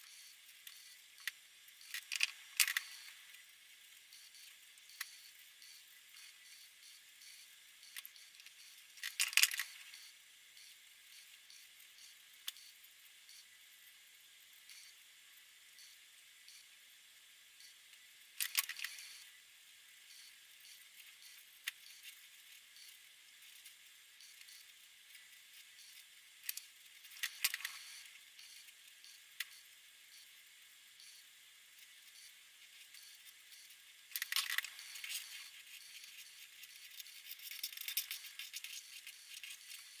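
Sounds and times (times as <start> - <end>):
marker scratching on paper: 34.7 - 40.0.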